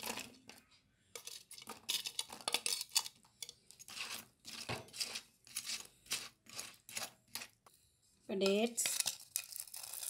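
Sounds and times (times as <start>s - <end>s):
spoon scraping bowl: 0.0s - 0.6s, 1.2s - 7.6s.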